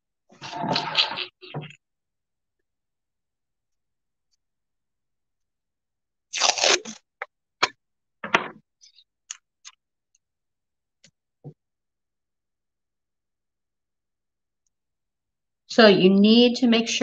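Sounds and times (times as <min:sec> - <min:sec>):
tape ripping off roll: 0:06.3 - 0:07.1.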